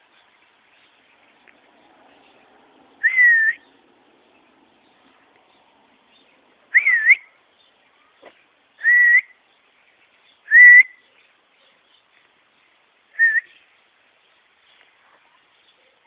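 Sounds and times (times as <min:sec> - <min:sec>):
person whistling: 0:08.8 - 0:09.3.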